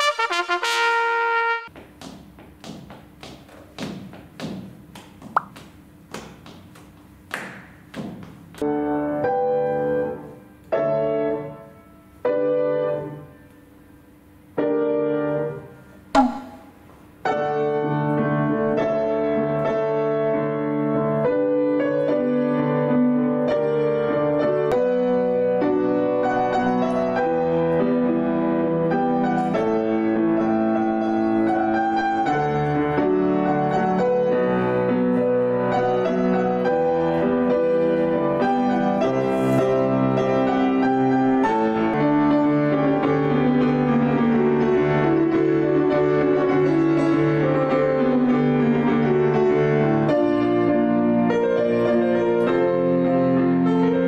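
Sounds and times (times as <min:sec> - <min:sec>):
two-handed piano playing: 0:07.4 - 0:13.3, 0:17.2 - 0:54.0
piano chords ringing: 0:08.6 - 0:13.4, 0:14.5 - 0:54.0.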